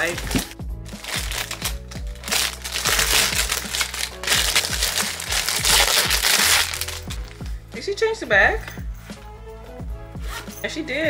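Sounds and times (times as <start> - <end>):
plastic packaging crinkling: 0.0 - 7.4
background music with beat: 0.0 - 10.6.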